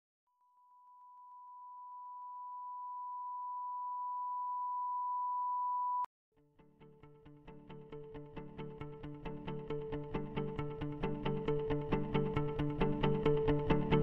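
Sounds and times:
music with plucked notes: 0:06.6 - 0:14.0.

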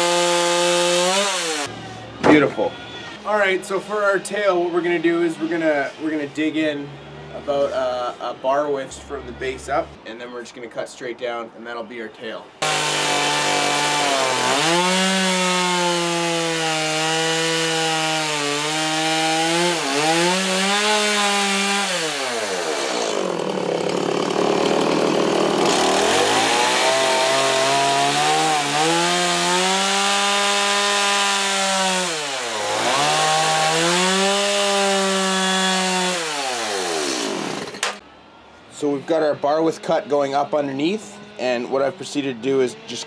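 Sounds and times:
chainsaw cutting wood: 0:00.0 - 0:02.5, 0:12.6 - 0:38.0.

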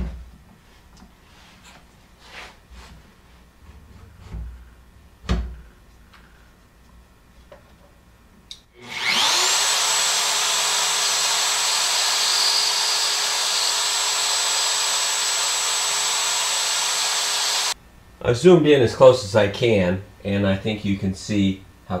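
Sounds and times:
click: 0:08.5 - 0:08.7
router whining: 0:08.8 - 0:17.8.

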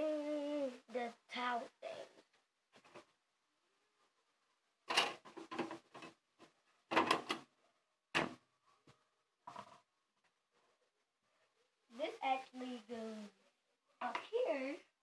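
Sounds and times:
objects clattering: 0:04.9 - 0:07.4.

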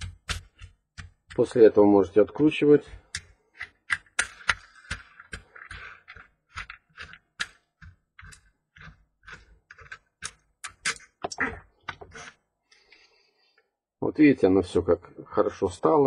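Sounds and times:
small plastic clicks and taps: 0:00.0 - 0:01.6, 0:02.9 - 0:12.1.

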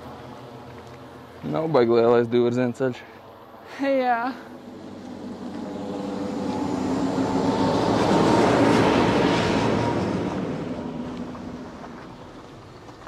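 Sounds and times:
vehicle driving past: 0:04.4 - 0:13.0.

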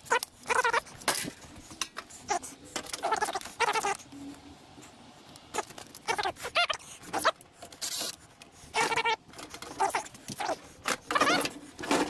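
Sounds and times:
screws squeaking: 0:00.0 - 0:01.1, 0:02.3 - 0:04.0, 0:05.5 - 0:12.0.

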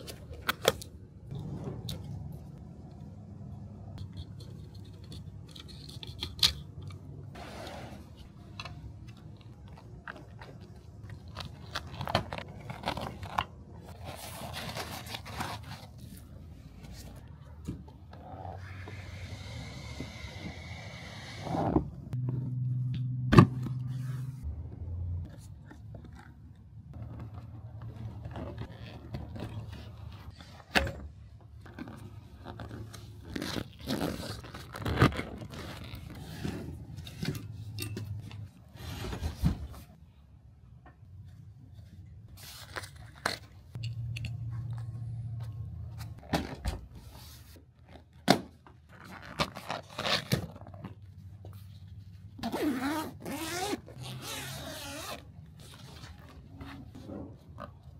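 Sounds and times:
low hum: 0:22.2 - 0:25.4.

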